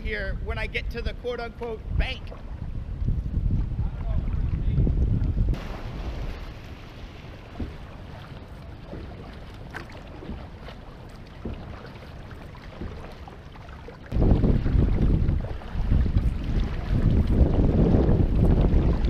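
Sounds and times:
wind buffeting microphone: 0:00.0 - 0:13.4, 0:14.1 - 0:19.0
water running along hull: 0:01.1 - 0:19.0
small splashes: 0:05.5 - 0:19.0
knocks on canoe: 0:07.5 - 0:07.9, 0:11.4 - 0:12.0, 0:12.7 - 0:13.2.

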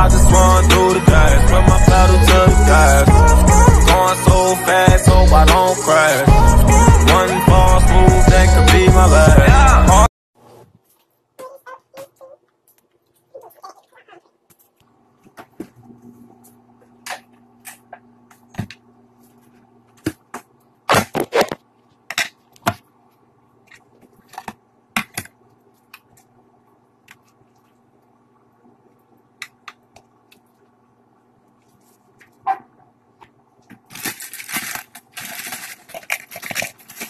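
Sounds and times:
plastic bowls and spoon clinking: 0:33.2 - 0:37.0.

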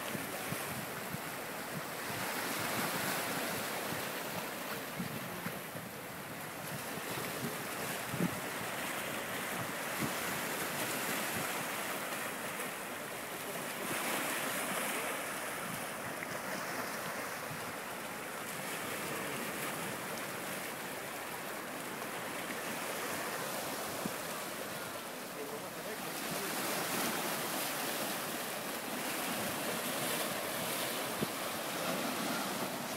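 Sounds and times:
wind on microphone: 0:00.0 - 0:11.7
waves splashing on rocks: 0:00.0 - 0:32.9.

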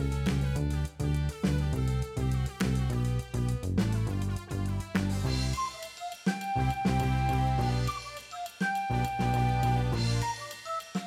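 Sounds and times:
music with steady beat and bass: 0:00.0 - 0:11.0.

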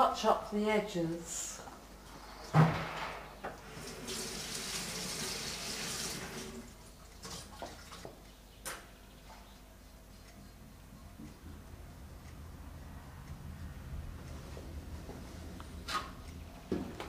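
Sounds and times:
water running: 0:03.7 - 0:08.3.

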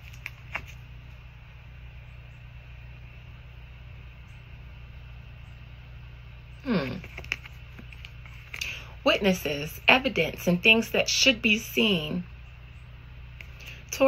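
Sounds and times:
steady low hum: 0:00.0 - 0:14.0
cards being handled clicking: 0:07.0 - 0:08.8.

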